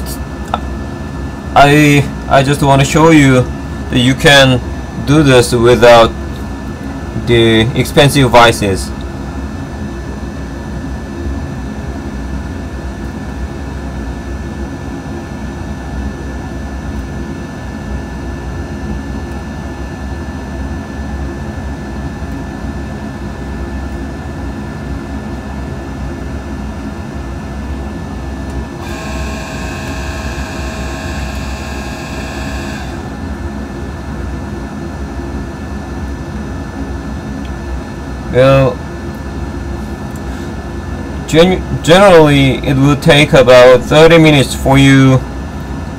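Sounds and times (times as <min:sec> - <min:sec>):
high multi-tone whine: 0:00.0 - 0:15.4, 0:16.1 - 0:45.9
machine hum with low rumble: 0:00.0 - 0:45.9
faint steady tones: 0:28.5 - 0:33.3.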